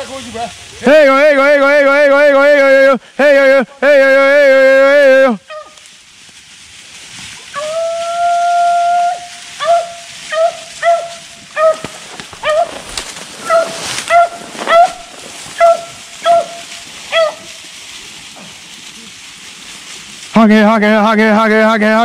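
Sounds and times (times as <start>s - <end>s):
hound baying and barking: 5.4s - 5.8s, 9.5s - 17.6s.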